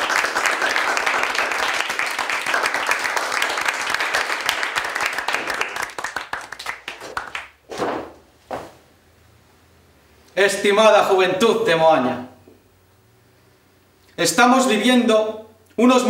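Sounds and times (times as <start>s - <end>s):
people applauding: 0.0s - 7.6s.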